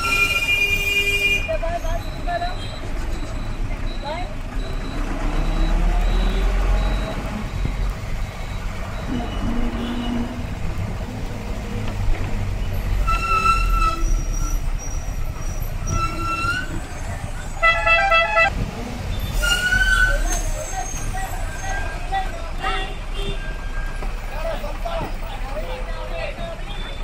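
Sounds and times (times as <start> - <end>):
vehicle horns tooting: 0.0 - 2.8, 9.0 - 10.6, 13.0 - 14.7, 17.5 - 18.6, 19.2 - 23.8
traffic engine rumble: 0.0 - 27.0.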